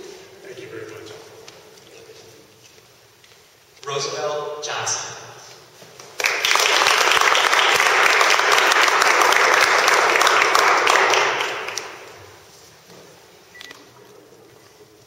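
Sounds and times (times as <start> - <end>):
crowd applauding: 6.1 - 12.2.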